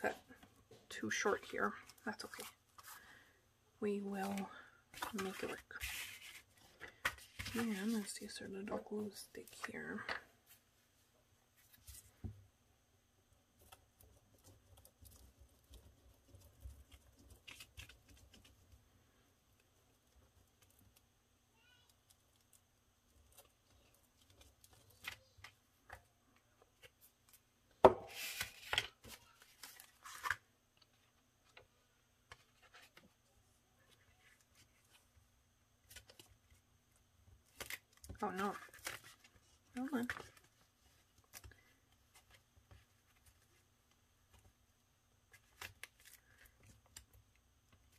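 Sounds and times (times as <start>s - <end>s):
paper sheets rustling: 4.2s - 8.2s.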